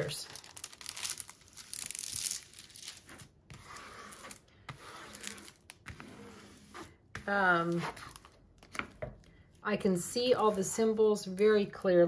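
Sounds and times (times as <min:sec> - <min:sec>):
plastic film crinkling: 0:00.0 - 0:03.2.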